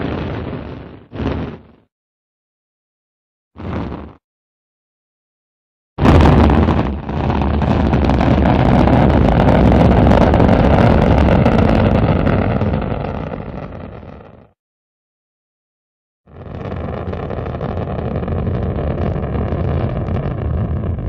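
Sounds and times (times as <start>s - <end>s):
deep rocket engine noise: 0.0s - 1.7s, 6.0s - 14.5s, 16.3s - 21.0s
rocket engine burst: 6.0s - 13.9s.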